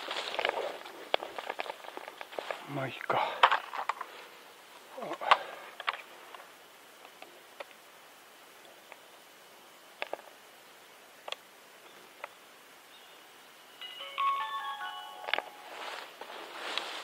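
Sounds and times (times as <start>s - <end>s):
electronic jingle of beeps: 13.8s - 15.8s.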